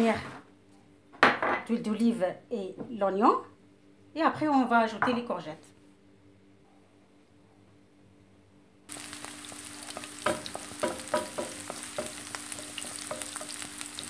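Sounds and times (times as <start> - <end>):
onions sizzling in oil: 8.9 - 14.0.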